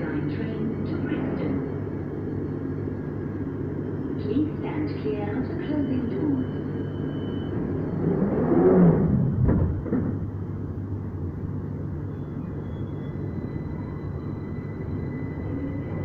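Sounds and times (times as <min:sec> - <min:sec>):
thin steady whine: 0:00.0 - 0:16.0
train pulling away humming: 0:00.0 - 0:16.0
train clunk: 0:09.4 - 0:10.4.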